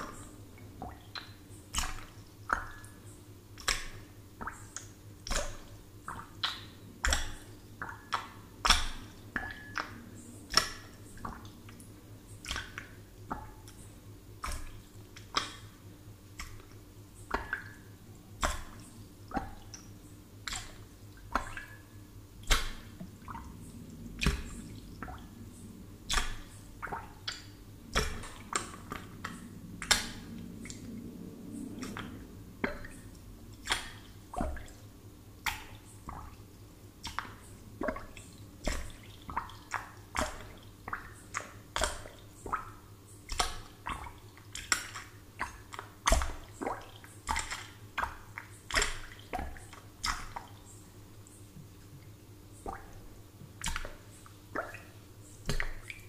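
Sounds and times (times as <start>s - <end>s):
faint low hum: 0.0s - 56.0s
air bubbles plopping in water: 18.4s - 25.4s, 26.1s - 31.0s, 31.7s - 34.8s, 37.0s - 50.6s, 52.6s - 56.0s.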